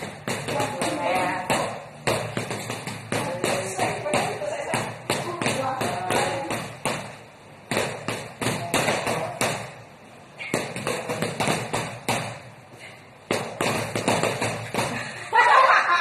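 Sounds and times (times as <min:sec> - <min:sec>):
foam noodles smacking boxing gloves: 0:10.4 - 0:12.5, 0:13.3 - 0:15.0.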